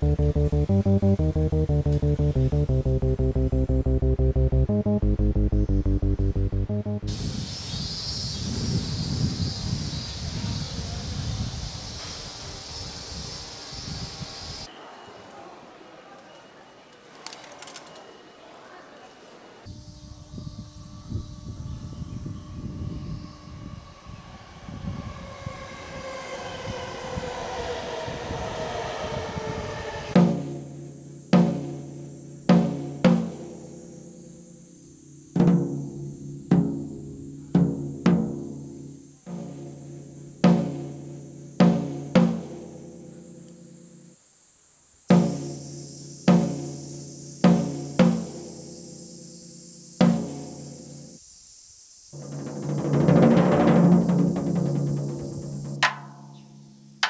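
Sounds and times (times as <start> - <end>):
deep pitched drum strikes: 0.0 - 7.2, 35.2 - 43.2
electric train motor whine: 19.8 - 30.2.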